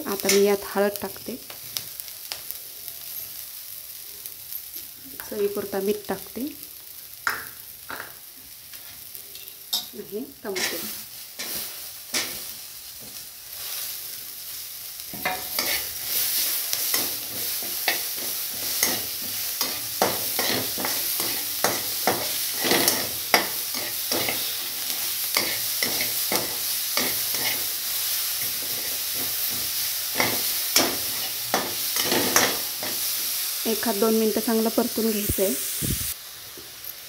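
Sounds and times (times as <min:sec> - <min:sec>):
vegetables sizzling in oil: 0:00.0 - 0:37.0
metal spatula scraping a pan: 0:10.5 - 0:12.5, 0:15.1 - 0:33.1.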